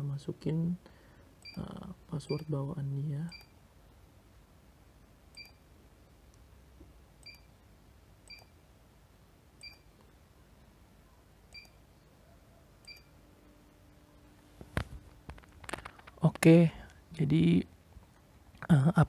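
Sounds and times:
faint high-pitched touchscreen beeps: 1.4 - 3.6, 5.3 - 5.7, 7.2 - 7.6, 8.2 - 8.6, 9.6 - 9.9, 11.0 - 13.4.

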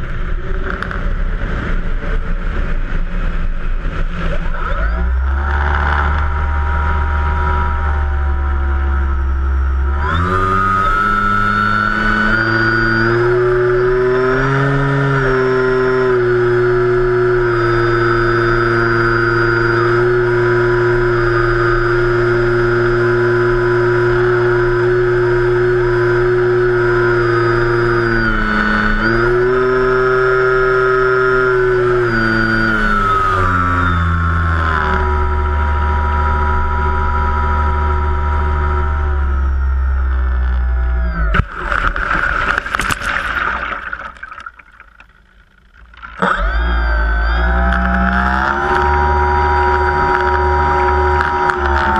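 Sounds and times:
wind rushing over camera: 0.0 - 14.6
electric motor and propeller whine: 0.0 - 51.9
water splashing and gurgling: 41.3 - 46.8.

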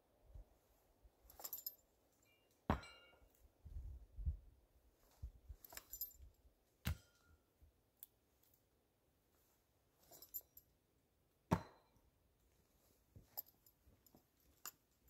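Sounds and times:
metallic clinks: 1.3 - 3.3, 5.6 - 6.4, 10.1 - 10.7, 13.3 - 15.0.

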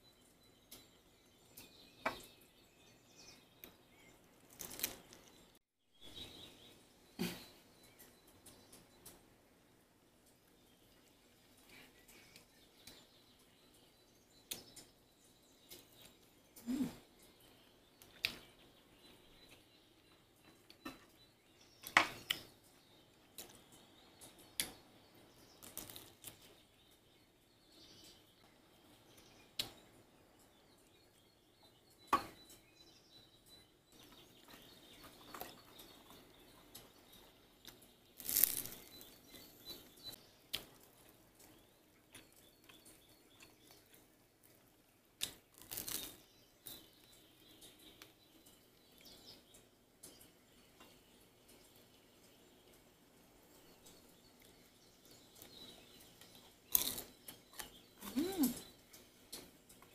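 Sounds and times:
wooden skewers and metal cups clicking: 4.4 - 5.6, 25.5 - 27.0, 33.9 - 52.9, 53.5 - 59.9
rustling at a table: 38.0 - 41.6.

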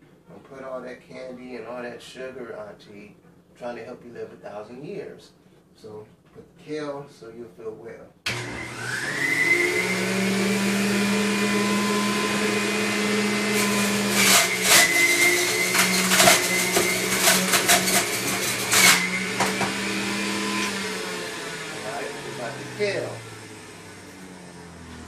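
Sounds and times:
kale crackling in juicer: 8.3 - 22.8
electric juicer motor whine: 8.3 - 25.0.

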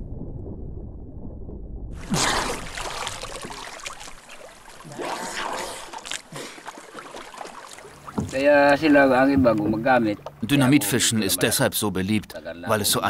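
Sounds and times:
muffled underwater rumble: 0.0 - 2.1
water splashing and trickling: 1.9 - 10.8.

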